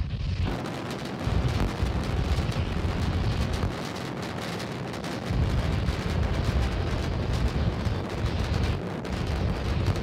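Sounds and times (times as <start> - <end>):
rocket engines crackling roar: 0.0 - 10.0.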